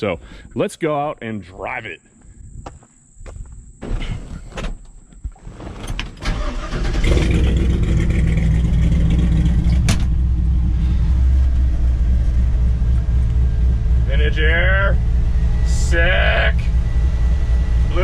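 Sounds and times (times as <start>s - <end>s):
truck engine deep rumble: 4.0s - 18.0s.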